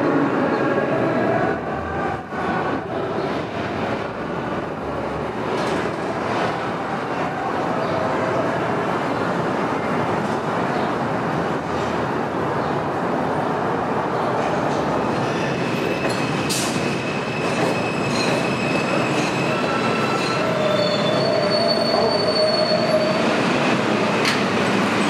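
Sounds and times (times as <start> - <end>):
train wheels rumbling on rail: 12.8 - 25.0
high wheel squeals: 15.8 - 23.4.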